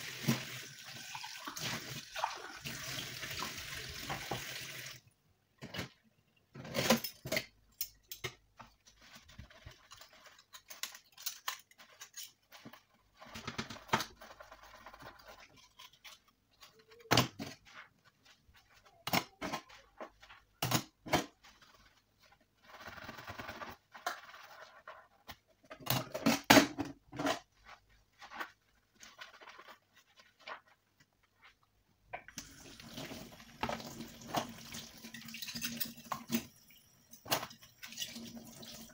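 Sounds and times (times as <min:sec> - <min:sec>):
tap water running: 0:00.0 - 0:05.1, 0:32.2 - 0:38.9
cutlery clinking in metal sink: 0:33.6 - 0:36.5.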